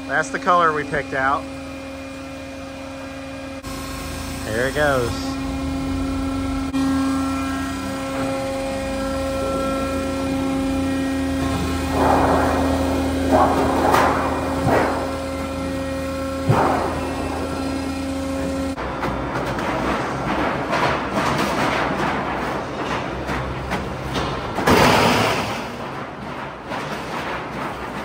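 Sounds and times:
machinery humming: 0.0 - 28.0
steel sheet rattling clanks: 19.2 - 28.0.

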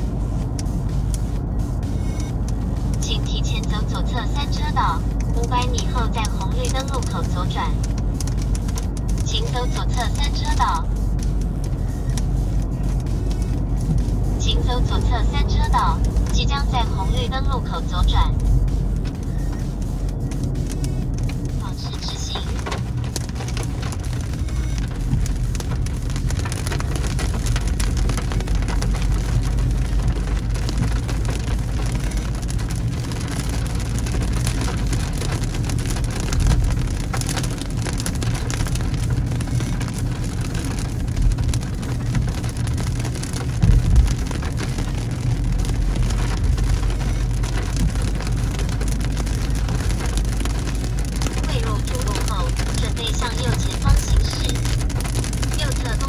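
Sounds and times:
low bumps: 0.0 - 56.0
rain pattering on car windshield: 0.0 - 56.0
road and engine rumble: 0.0 - 56.0.

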